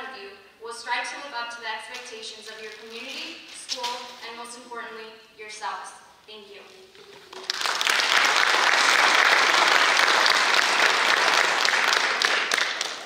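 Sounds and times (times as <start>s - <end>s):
audience applauding: 7.1s - 13.0s.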